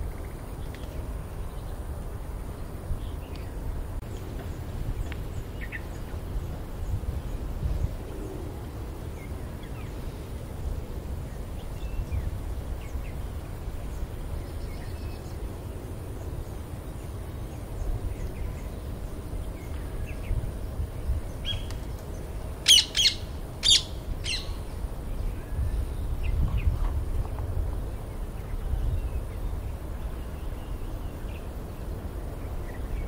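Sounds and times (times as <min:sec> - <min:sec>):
parakeets calling: 0:22.6 - 0:24.6.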